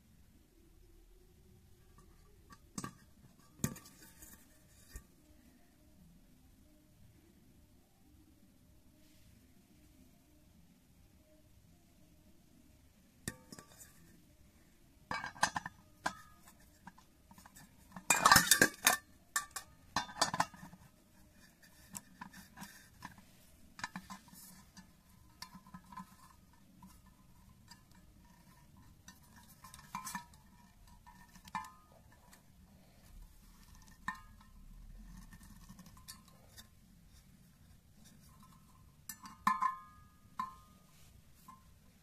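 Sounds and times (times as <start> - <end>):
metal bowl clinking and scraping: 1.8 - 5.1, 13.3 - 14.2, 15.1 - 42.0.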